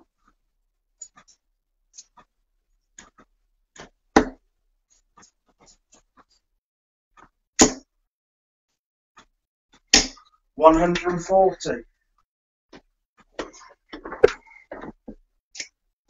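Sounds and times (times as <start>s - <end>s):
darts thudding into dartboard: 3.8s - 4.4s, 7.6s - 7.9s, 9.9s - 10.2s.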